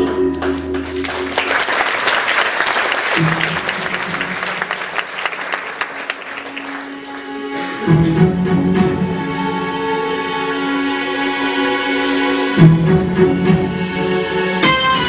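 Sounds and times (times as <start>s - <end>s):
audience clapping: 0.0s - 7.9s
music: 0.0s - 15.0s.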